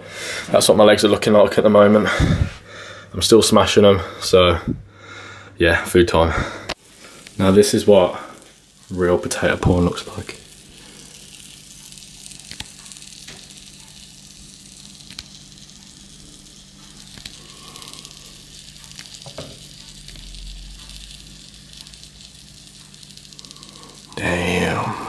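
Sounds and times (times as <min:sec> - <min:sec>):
steady low hum: 0:00.0 - 0:25.0
small crackles: 0:06.4 - 0:25.0
potatoes sizzling on a tray: 0:06.8 - 0:25.0.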